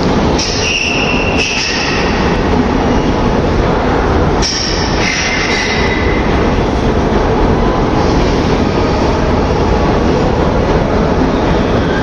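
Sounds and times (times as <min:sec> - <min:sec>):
metro train rumbling: 0:00.0 - 0:12.0
high squeal: 0:00.4 - 0:02.1.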